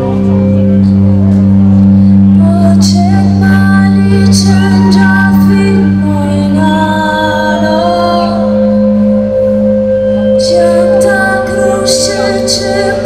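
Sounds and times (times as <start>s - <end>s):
synthesizer drone: 0.0s - 13.0s.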